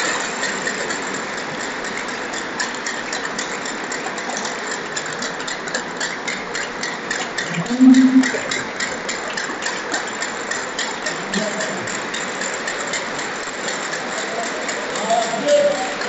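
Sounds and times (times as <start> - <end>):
crowd noise in a large hall: 7.3 - 8.9, 11.0 - 16.0.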